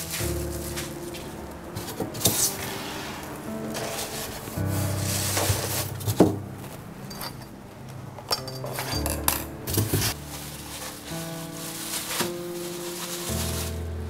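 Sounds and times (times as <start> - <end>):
soft background music: 0.0 - 14.0
kitchenware clinking: 7.0 - 7.6, 8.2 - 10.2.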